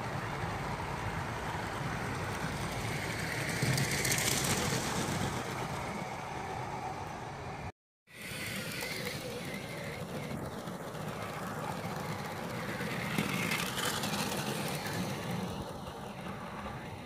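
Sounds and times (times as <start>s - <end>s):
toy train rolling whir: 0.0s - 17.0s.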